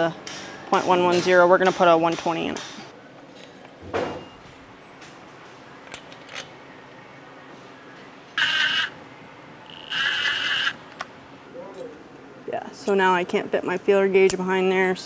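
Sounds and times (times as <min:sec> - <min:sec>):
power tool motor whirring: 0:08.4 - 0:09.0, 0:09.7 - 0:10.8.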